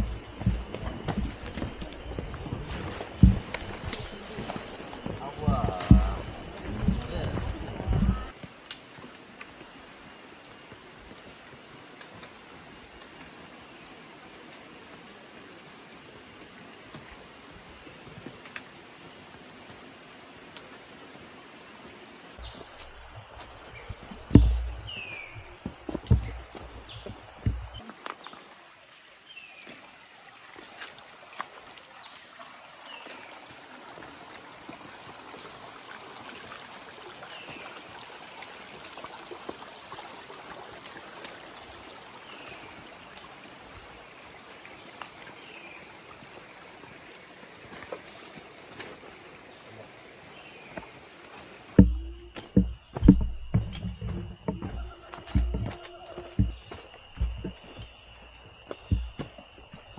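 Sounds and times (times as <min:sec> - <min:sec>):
heavy footfalls and thumps: 0:00.0 - 0:04.2, 0:05.0 - 0:08.4, 0:23.8 - 0:27.8, 0:51.8 - 0:57.9, 0:58.8 - 0:59.9
rushing rocky stream: 0:00.0 - 0:59.9.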